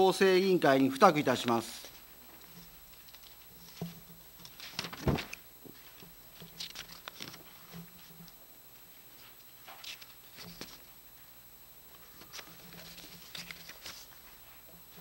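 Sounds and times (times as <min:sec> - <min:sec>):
paper rustling: 0:02.4 - 0:08.1, 0:09.2 - 0:10.9, 0:12.0 - 0:15.0.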